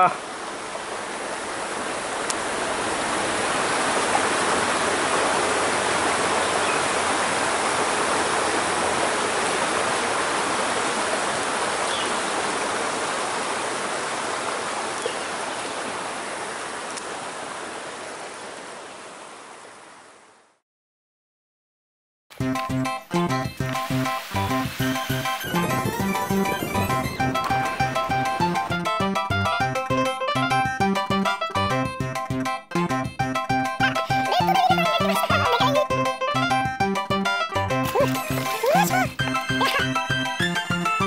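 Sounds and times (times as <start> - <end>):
stream splashing over rocks: 0.0 - 19.3, 23.4 - 29.1.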